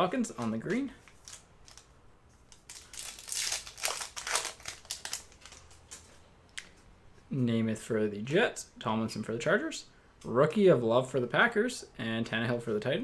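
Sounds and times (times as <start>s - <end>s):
card pack wrapper crinkling: 0.3s - 6.1s.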